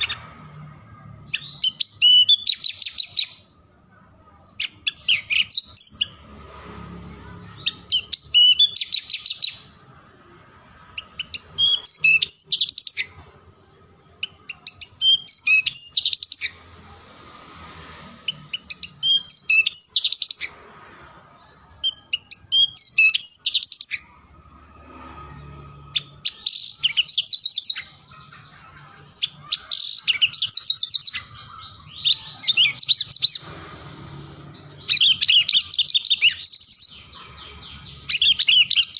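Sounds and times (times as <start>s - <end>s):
lark singing with trills: 25.9s - 28.0s, 34.6s - 38.9s.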